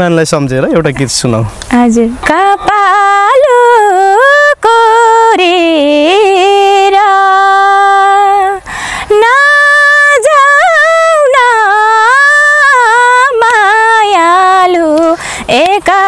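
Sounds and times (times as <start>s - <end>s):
woman singing unaccompanied: 1.7s - 16.0s
woman breathing in: 8.6s - 9.1s, 15.2s - 15.5s.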